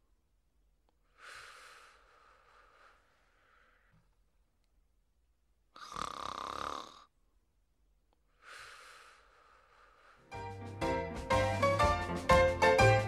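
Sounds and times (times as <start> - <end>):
dog snoring: 5.8 - 7.1
music: 10.3 - 13.0.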